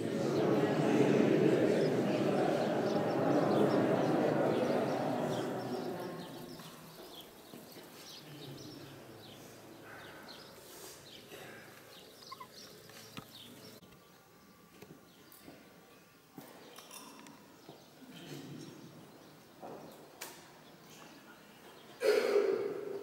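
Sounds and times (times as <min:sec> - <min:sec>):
murmur: 0:00.0 - 0:13.9
small birds chirping: 0:03.5 - 0:14.2.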